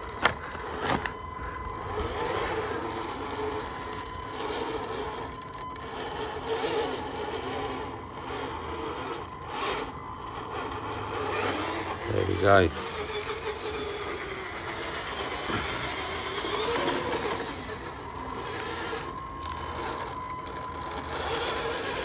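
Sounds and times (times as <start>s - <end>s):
toy truck motor whining: 0.0s - 22.0s.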